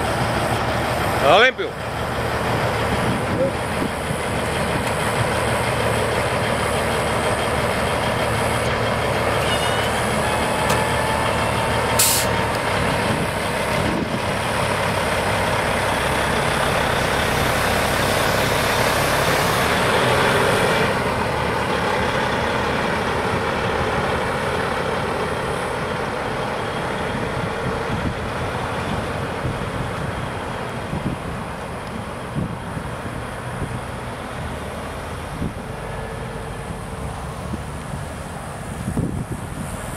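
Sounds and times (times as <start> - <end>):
truck diesel engine running: 0.0 - 39.9
air brakes hiss: 11.9 - 12.4.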